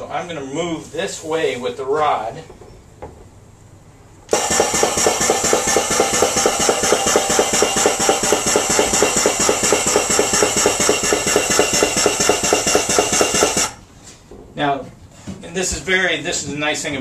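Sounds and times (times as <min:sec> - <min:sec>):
extrusion welder motor whirring: 0:04.3 - 0:13.8.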